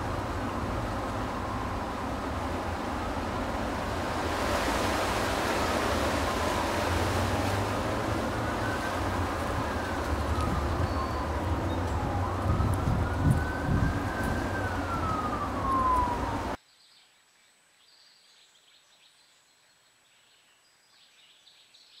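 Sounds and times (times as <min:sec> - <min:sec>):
distant siren wailing: 0:00.0 - 0:16.6
low outdoor rumble: 0:00.0 - 0:16.6.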